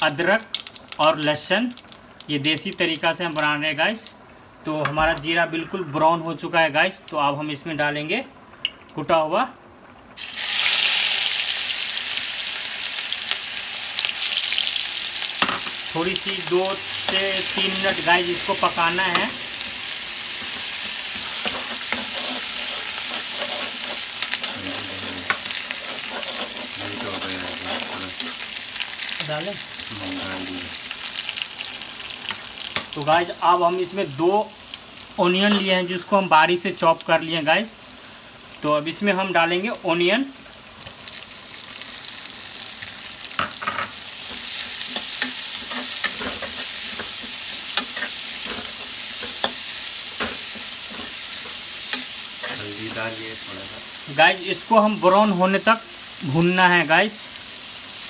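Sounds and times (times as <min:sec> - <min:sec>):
spices sizzling in hot oil: 0:00.0 - 0:58.0
spatula scraping a pan: 0:20.3 - 0:28.6, 0:44.2 - 0:53.1.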